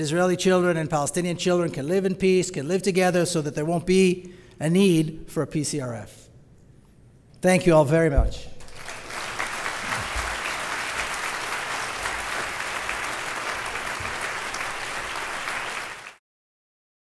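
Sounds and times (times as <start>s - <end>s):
audience applauding: 8.6s - 16.2s.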